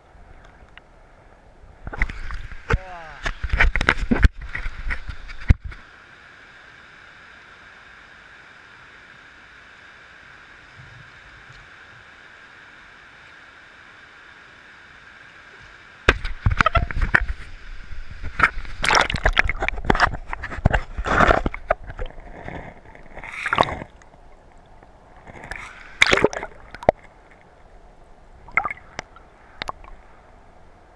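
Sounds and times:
muffled river rushing: 0.0 - 30.9
water splashing against camera: 1.8 - 5.8, 16.1 - 27.4, 28.4 - 30.0.

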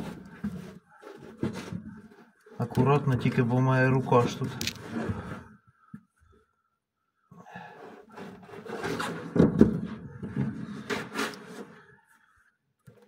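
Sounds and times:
rubbing and scraping: 0.0 - 3.0, 7.7 - 12.2.

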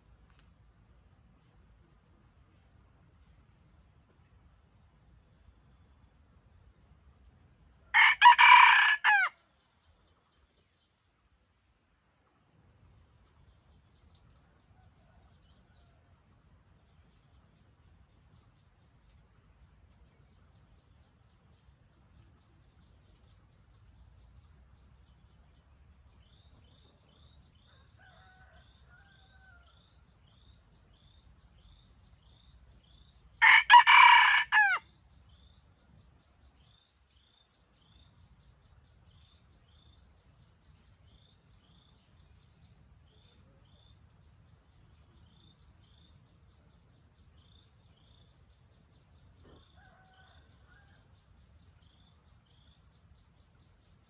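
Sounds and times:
faint insect chirping: 0.0 - 54.0
rooster crowing: 7.9 - 9.4, 27.7 - 29.8, 33.4 - 34.8.

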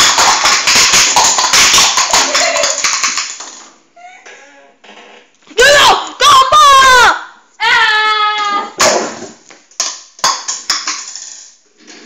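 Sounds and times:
stack of cups clattering: 0.0 - 3.7, 8.8 - 12.0.

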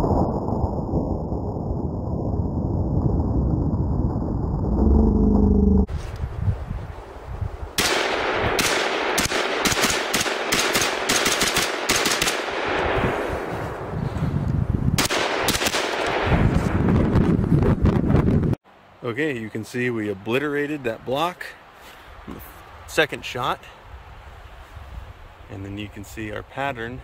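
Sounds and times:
deep low rumble: 0.0 - 6.0
rifle rapid shots: 7.8 - 13.0, 15.0 - 16.3.

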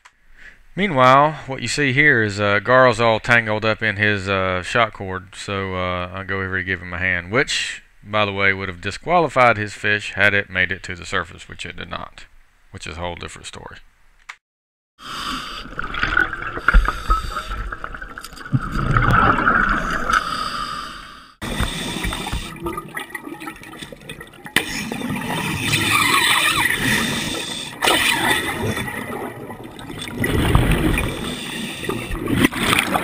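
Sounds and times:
scuba exhalation bubbles: 15.3 - 20.4, 21.4 - 33.0.

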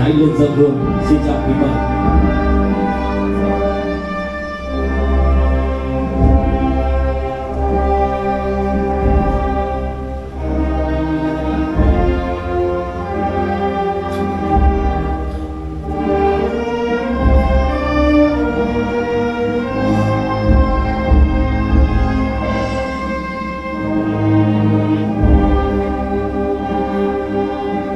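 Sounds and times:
orchestral music: 0.0 - 27.9.

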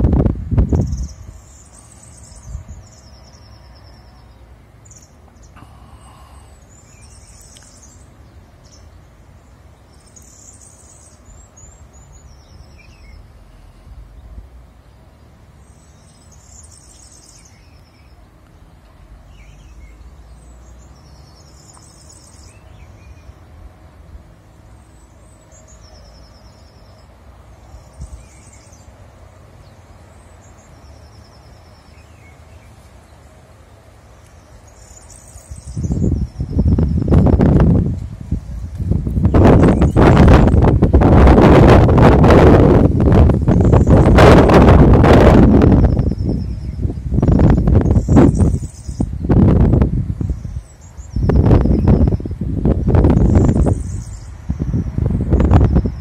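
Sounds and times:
low outdoor rumble: 0.0 - 56.0
songbird trilling: 0.7 - 9.1, 9.8 - 13.3, 15.6 - 18.2, 19.3 - 23.4, 24.8 - 28.9, 34.3 - 37.6, 38.5 - 40.6, 45.3 - 49.6, 50.2 - 56.0.

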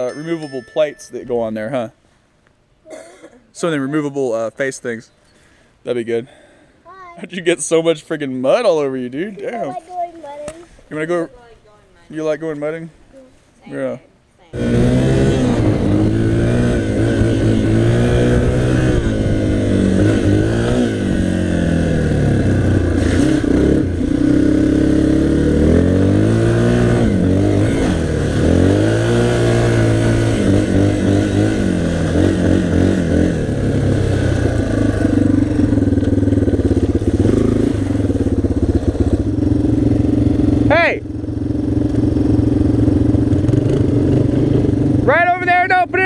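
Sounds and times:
dirt bike engine revving: 14.5 - 46.0.

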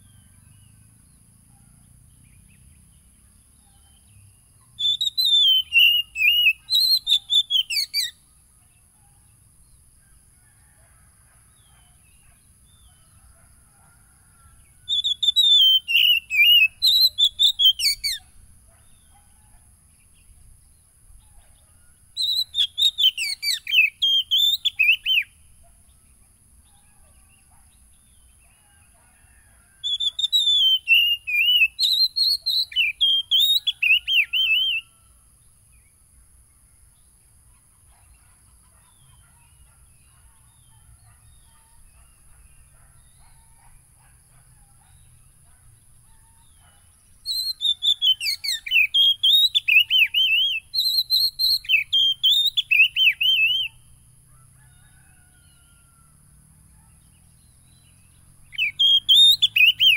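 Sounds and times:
bird singing whistled notes: 2.2 - 8.3, 14.8 - 19.3, 22.2 - 25.4, 29.8 - 35.0, 46.4 - 53.9, 57.2 - 59.9.

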